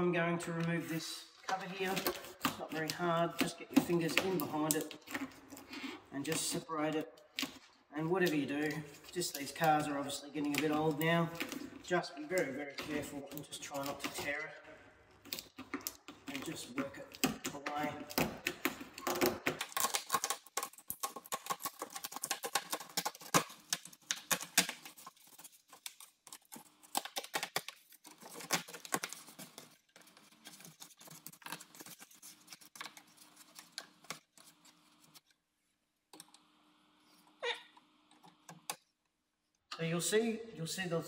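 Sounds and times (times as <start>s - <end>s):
plastic sheet crackling as peeled: 8.2s - 14.4s, 15.2s - 35.3s.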